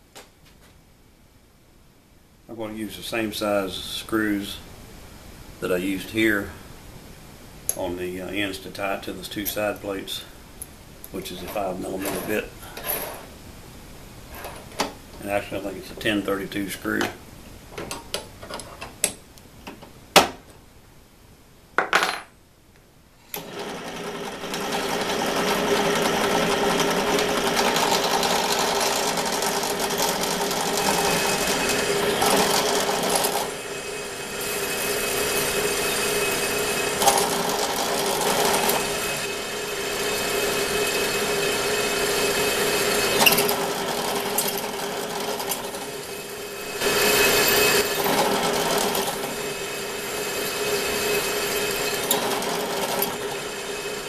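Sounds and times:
drill press drilling metal: 0:23.4 - 0:54.0.

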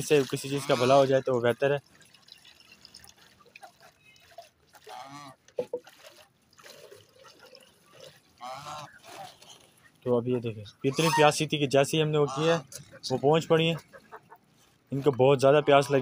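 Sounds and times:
water trickling into bowl: 0:00.0 - 0:11.4
poultry calls: 0:08.0 - 0:10.0, 0:12.2 - 0:14.8.

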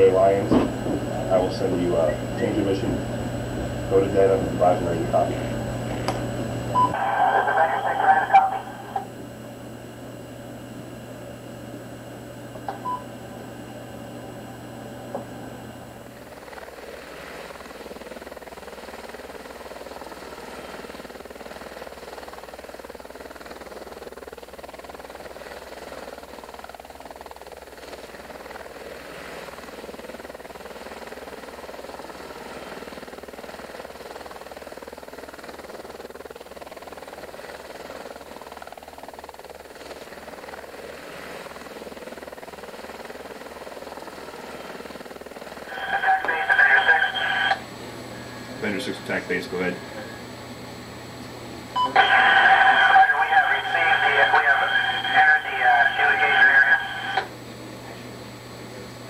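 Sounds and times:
helicopter rotor and turbine: 0:00.0 - 0:59.0.

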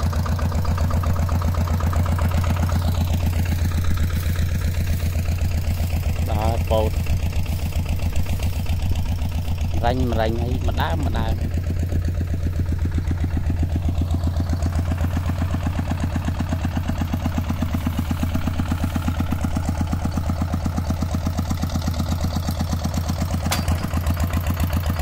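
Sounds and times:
diesel engine running: 0:00.0 - 0:25.0
sharp click: 0:23.5 - 0:23.9.

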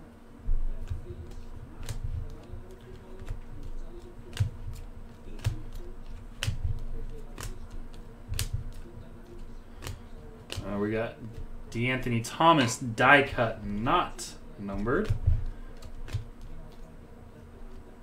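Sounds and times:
cards rubbing and handling bumps: 0:00.7 - 0:12.2, 0:13.4 - 0:17.9
trading cards snapping onto stack: 0:00.8 - 0:08.9, 0:09.8 - 0:10.7, 0:14.8 - 0:16.8.

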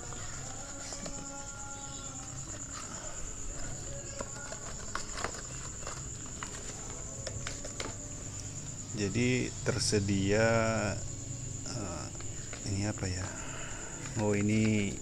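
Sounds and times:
cardboard and paper rustling: 0:00.0 - 0:09.2, 0:11.8 - 0:15.0.

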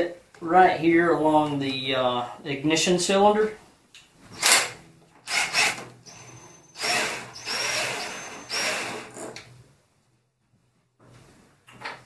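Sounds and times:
cordless power driver whining: 0:04.4 - 0:09.4.

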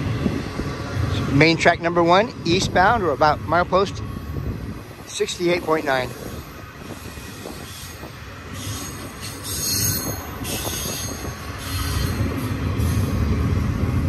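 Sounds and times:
train wheels rumbling on rails: 0:00.0 - 0:14.0
high-pitched wheel squeal: 0:06.8 - 0:13.1.

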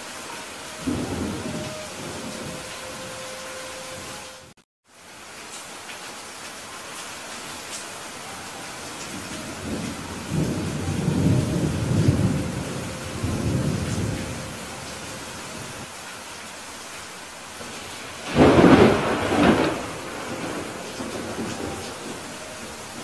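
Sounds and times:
steady rain falling: 0:00.0 - 0:23.0
rolling thunder rumble: 0:00.3 - 0:03.2, 0:08.8 - 0:15.9, 0:17.6 - 0:23.0
sharp thunderclap: 0:17.8 - 0:22.2.

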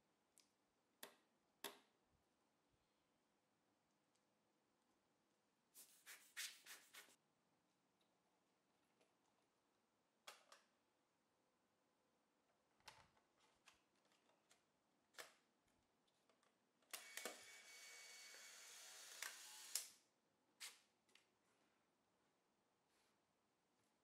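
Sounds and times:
camera motor whirring: 0:17.0 - 0:19.8.

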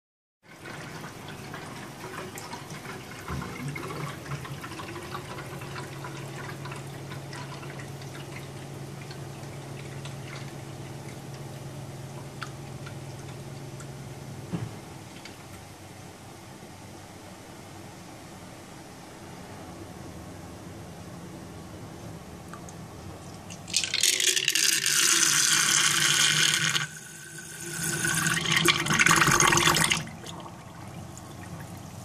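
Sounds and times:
water draining down a sink: 0:00.5 - 0:11.6, 0:23.2 - 0:32.0.

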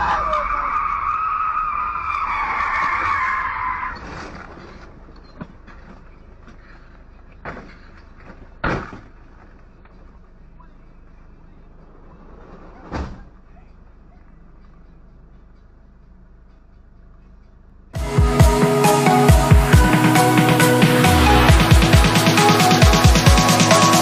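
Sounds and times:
tyres squealing: 0:00.0 - 0:09.6
low vehicle rumble: 0:00.0 - 0:24.0.

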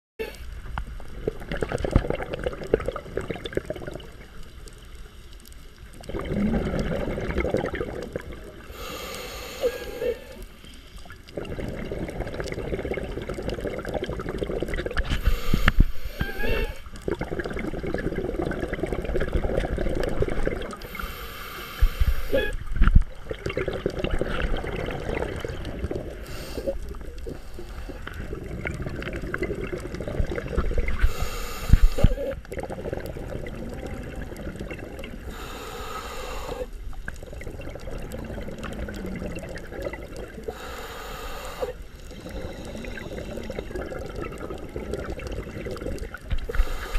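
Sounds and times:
bubbles gurgling underwater: 0:00.8 - 0:04.9, 0:05.8 - 0:09.0, 0:09.7 - 0:21.1, 0:22.0 - 0:35.6, 0:36.8 - 0:40.7, 0:41.9 - 0:46.9
hissing regulator breath: 0:08.7 - 0:10.9, 0:15.1 - 0:16.9, 0:20.8 - 0:22.6, 0:26.2 - 0:28.3, 0:31.0 - 0:32.4, 0:35.2 - 0:36.8, 0:40.5 - 0:43.8, 0:46.5 - 0:46.9.

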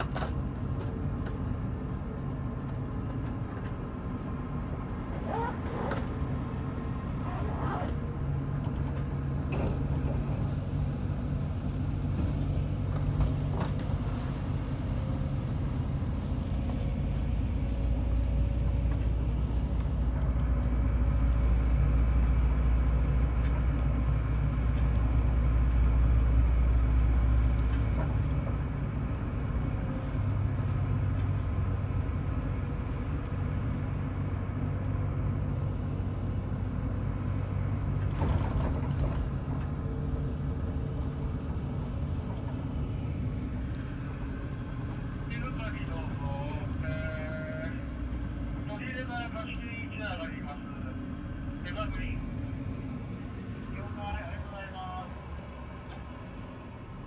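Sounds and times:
bus engine and road drone: 0:00.0 - 0:57.0.

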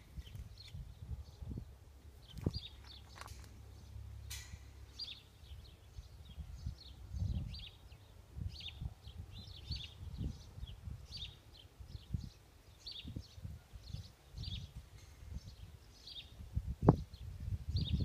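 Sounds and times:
small birds chirping: 0:00.0 - 0:18.0
low microphone rumbles: 0:04.8 - 0:12.4, 0:13.0 - 0:18.0.

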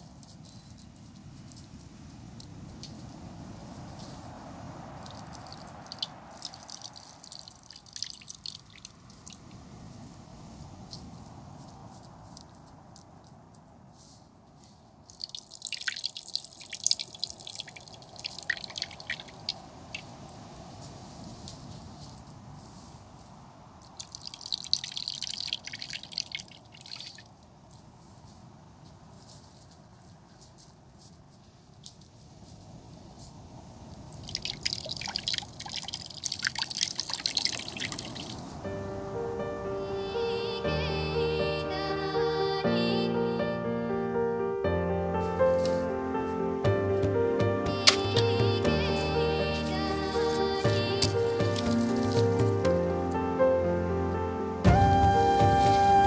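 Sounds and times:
liquid dripping into clay bowl: 0:15.2 - 0:19.5, 0:24.0 - 0:27.2.

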